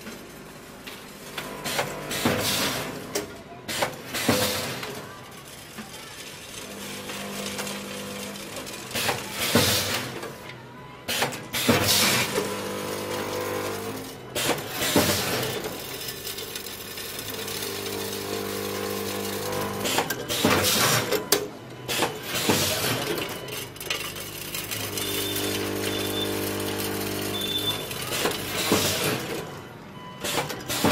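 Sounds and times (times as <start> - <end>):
machine electric hum: 5.3 - 10.5, 11.7 - 30.9.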